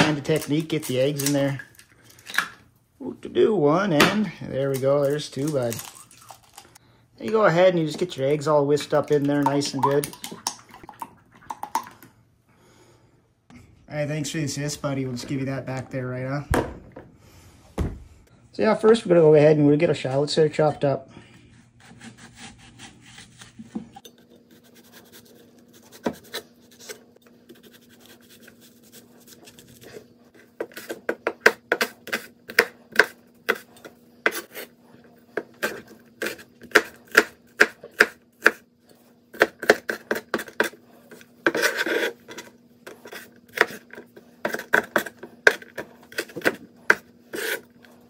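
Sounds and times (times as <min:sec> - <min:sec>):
knife scrape: 0:21.5 - 0:31.1, 0:31.7 - 0:34.8, 0:38.4 - 0:48.0.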